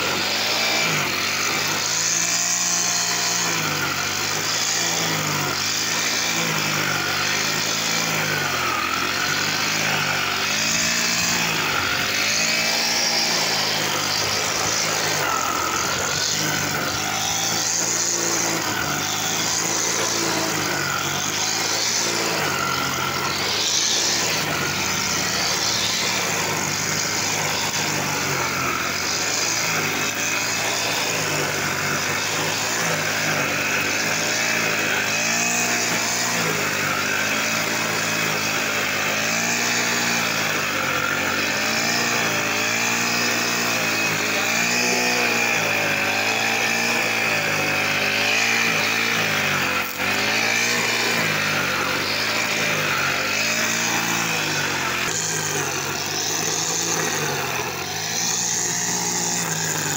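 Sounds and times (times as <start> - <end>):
brush cutter engine running: 0.0 - 59.9
trimmer line cutting grass: 0.0 - 59.9.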